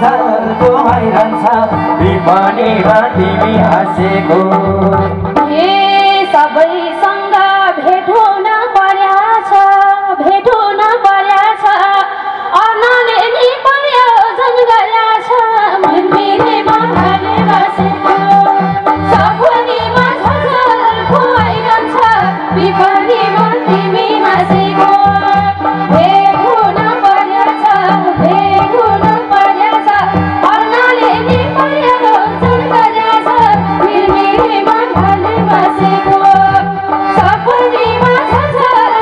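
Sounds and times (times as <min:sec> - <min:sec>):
hand drum rhythm: 0:00.0 - 0:05.9, 0:15.8 - 0:39.0.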